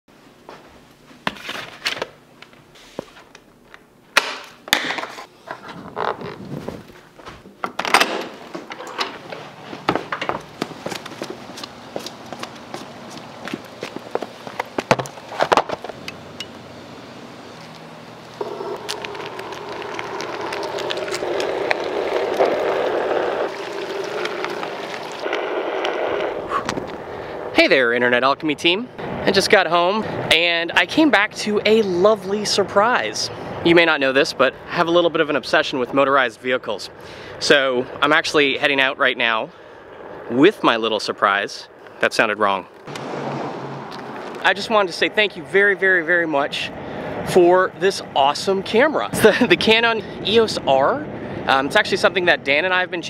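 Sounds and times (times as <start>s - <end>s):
footsteps: 0.4s - 1.8s, 4.9s - 7.7s, 8.3s - 16.0s, 17.6s - 25.5s
board handling knocks and rustling: 14.7s - 16.0s
electric board rumbling on pavement: 18.3s - 27.1s.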